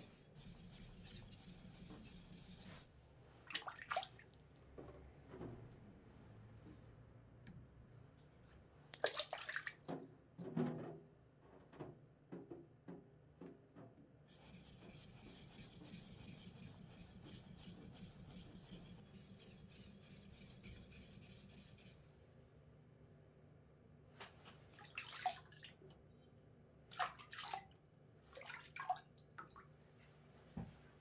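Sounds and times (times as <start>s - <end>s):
knife rasping on whetstone: 14.3s - 22.0s.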